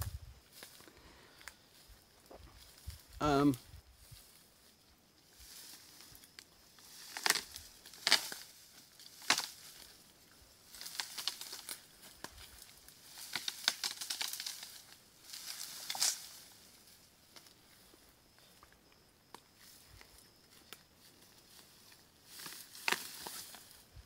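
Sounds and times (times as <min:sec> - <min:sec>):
brush dragged through dry grass: 0:03.8 - 0:10.0, 0:10.6 - 0:16.9
dry branches crackling and snapping: 0:05.4 - 0:16.5, 0:21.5 - 0:24.0.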